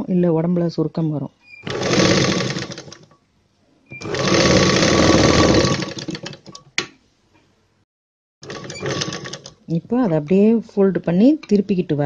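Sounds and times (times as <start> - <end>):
sewing machine stitching: 1.6 - 3.1, 4.0 - 6.6, 8.4 - 9.6.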